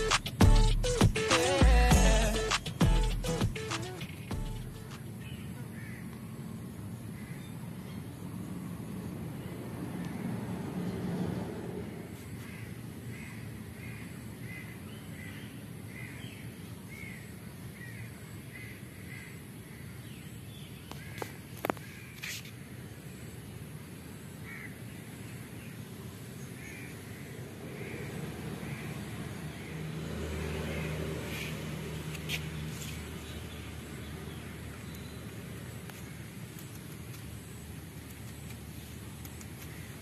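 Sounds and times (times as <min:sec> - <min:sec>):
sharp clicks: 0:35.9 - 0:39.8.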